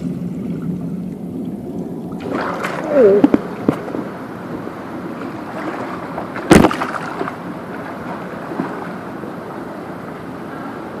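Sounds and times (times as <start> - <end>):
pool water splashing: 0.0 - 11.0
loud sharp splash: 2.2 - 3.1, 5.6 - 7.3.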